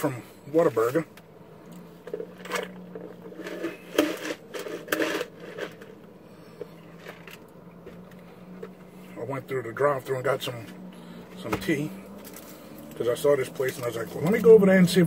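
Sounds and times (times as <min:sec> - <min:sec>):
steady low hum: 0:00.0 - 0:15.0
cup and foil rustling: 0:02.1 - 0:06.0.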